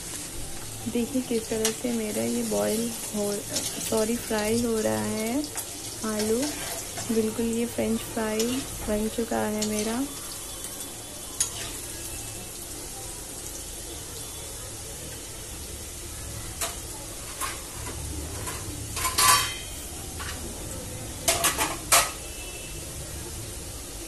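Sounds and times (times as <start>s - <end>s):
fries sizzling in hot oil: 0.0s - 24.0s
steel spoon clinking on pan: 11.4s - 12.0s, 18.4s - 20.4s.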